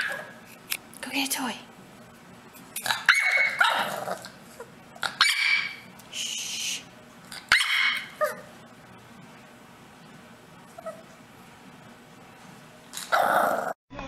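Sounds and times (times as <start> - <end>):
dog barking and yipping: 0.0 - 0.4, 2.9 - 4.2, 5.1 - 5.9, 7.4 - 8.5.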